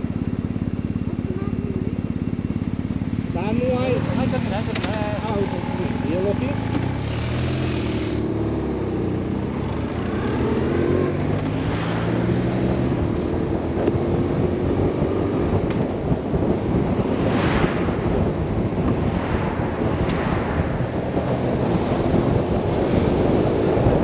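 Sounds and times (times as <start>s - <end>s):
motorcycle engine running: 0.0s - 24.0s
wind rushing over microphone: 1.8s - 24.0s.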